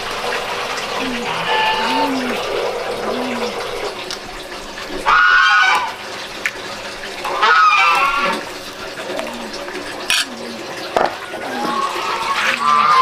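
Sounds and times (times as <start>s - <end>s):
running water rushing: 0.0s - 13.0s
loud bird calls: 0.9s - 3.9s.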